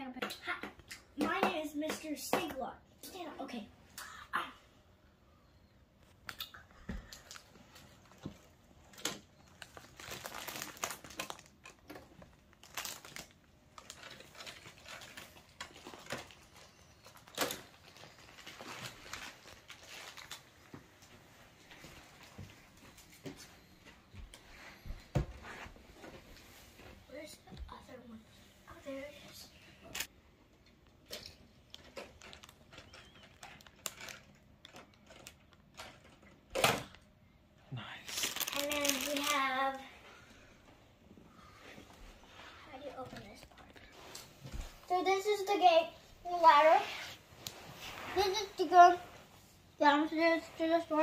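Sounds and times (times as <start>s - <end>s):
plastic bricks clicking and rustling: 31.1s - 36.4s.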